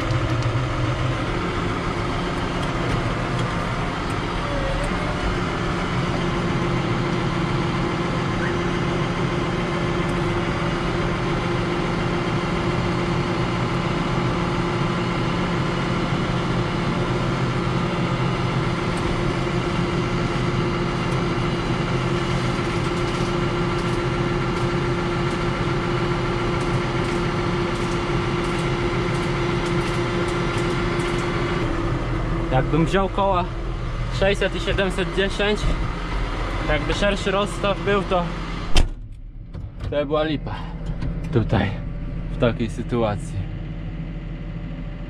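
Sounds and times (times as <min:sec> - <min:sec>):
tractor engine idling: 0:00.0 - 0:45.0.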